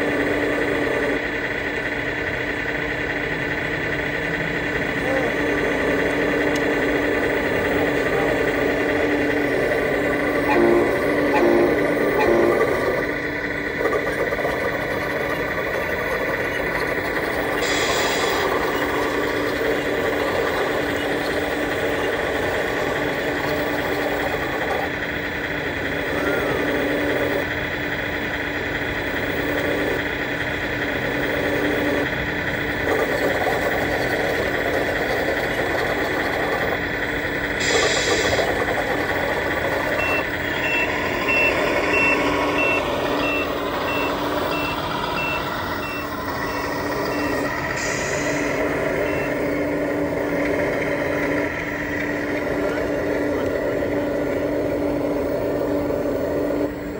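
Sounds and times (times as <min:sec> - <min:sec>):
engine running: 0:00.0 - 0:56.9
reversing alarm beeping: 0:04.0 - 0:25.0, 0:33.8 - 0:55.2.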